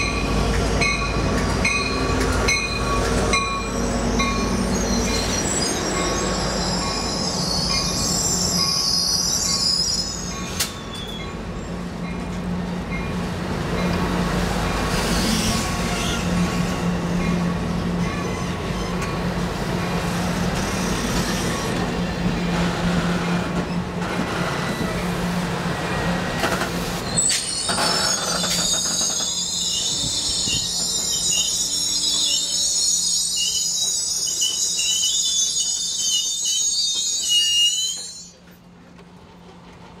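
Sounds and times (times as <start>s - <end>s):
train wheels rumbling on rails: 0.0s - 40.0s
wheel and brake squeal: 2.7s - 11.7s, 14.9s - 16.9s, 18.0s - 19.2s, 27.0s - 38.6s.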